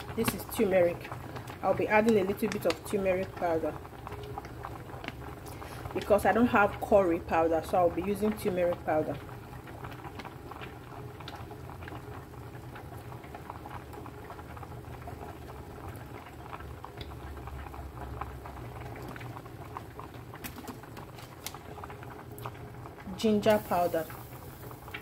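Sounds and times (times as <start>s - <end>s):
sauce bubbling and popping: 0.0s - 25.0s.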